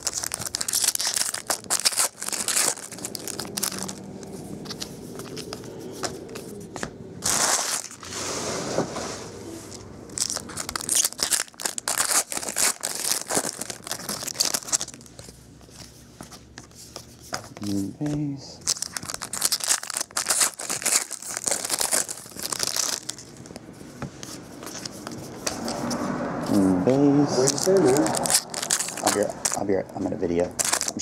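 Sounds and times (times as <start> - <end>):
foil wrappers tearing and crinkling: 0.0 - 5.5, 7.2 - 8.1, 10.1 - 15.3, 18.6 - 23.6, 27.4 - 29.7, 30.5 - 31.0
cards being handled: 0.0 - 8.0, 9.7 - 26.6, 27.4 - 31.0.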